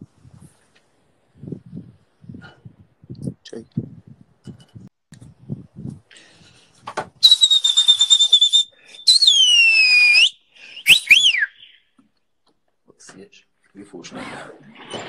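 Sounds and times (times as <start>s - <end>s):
high-pitched whistling: 7.2s - 11.8s.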